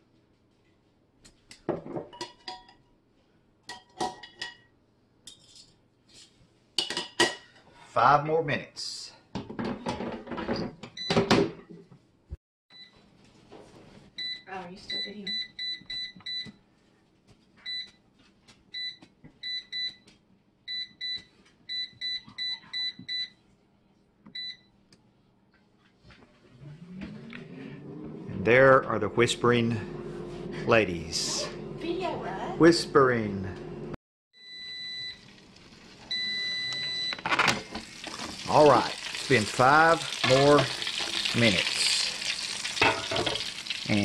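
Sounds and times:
metal tongs clinking on glass: 42.7s - 43.5s.

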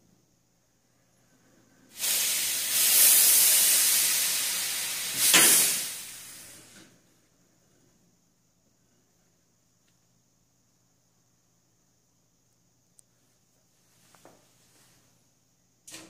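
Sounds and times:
steam hissing: 1.9s - 6.9s.

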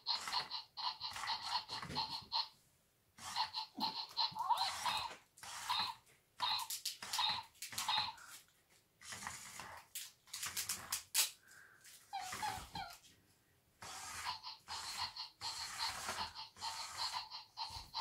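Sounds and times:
robot toy electronic barks and chirps: 3.2s - 8.2s, 13.9s - 18.0s.

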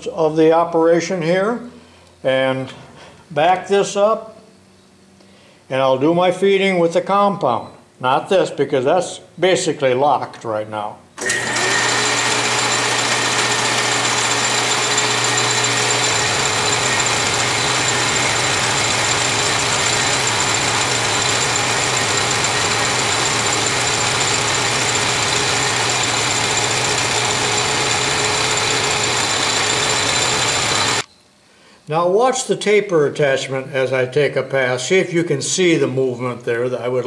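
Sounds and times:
lathe motor whirring: 11.2s - 31.0s.

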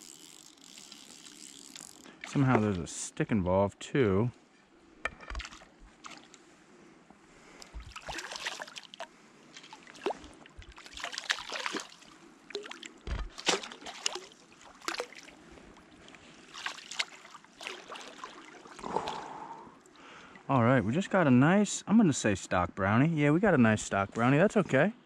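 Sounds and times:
splashing in shallow water: 5.4s - 6.4s, 7.7s - 19.4s.

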